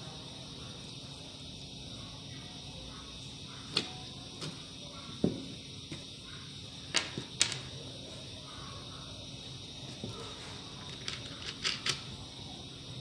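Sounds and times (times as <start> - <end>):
steady background hiss: 0.0 - 13.0
small parts clicking on workbench: 6.9 - 7.7, 10.8 - 12.1.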